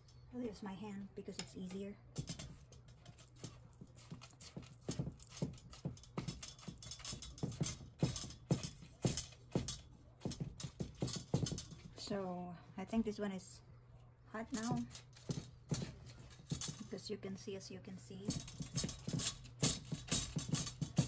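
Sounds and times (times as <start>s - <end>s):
low steady hum: 0.0s - 21.0s
taps against metal pot: 3.4s - 11.9s, 18.3s - 21.0s.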